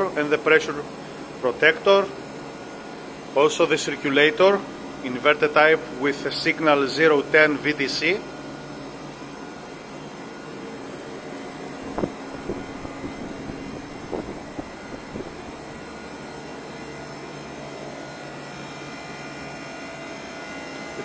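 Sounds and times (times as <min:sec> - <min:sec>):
heat pump humming: 0:00.0 - 0:21.0.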